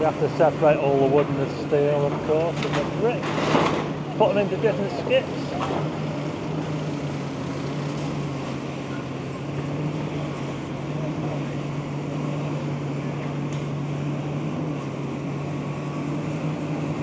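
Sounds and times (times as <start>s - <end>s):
excavator diesel engine running: 0.0s - 17.0s
street and site noise: 0.0s - 17.0s.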